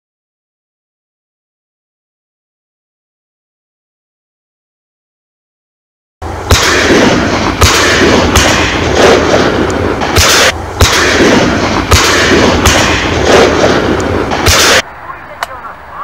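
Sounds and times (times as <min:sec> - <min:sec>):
continuous rushing noise: 0:06.2 - 0:16.0
shotgun shots: 0:06.4 - 0:14.9.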